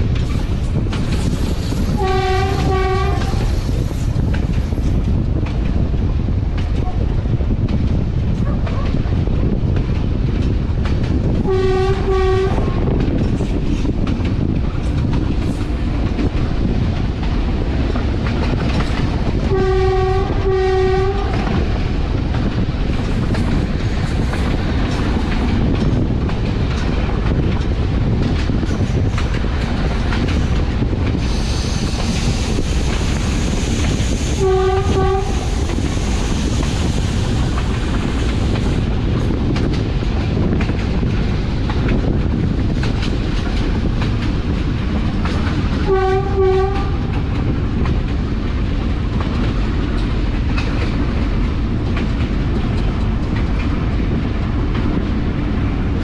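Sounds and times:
locomotive rumbling on track: 0:00.0 - 0:56.0
locomotive horn blasts: 0:02.0 - 0:03.4, 0:11.5 - 0:12.9, 0:19.5 - 0:21.5, 0:34.4 - 0:35.5, 0:45.8 - 0:47.1.

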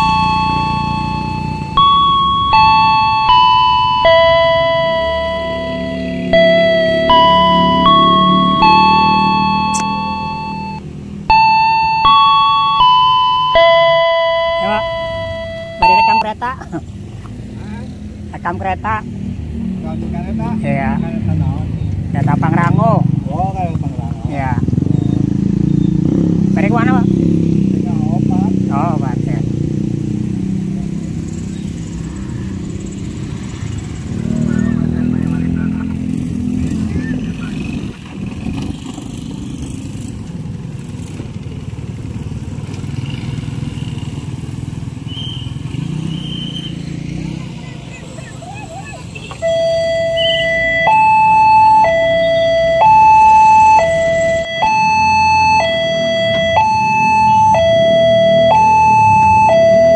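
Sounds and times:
two-tone level crossing alarm: 0:00.0 - 0:16.3, 0:49.4 - 0:59.9
motorcycle engines at low revs: 0:00.0 - 0:59.9.

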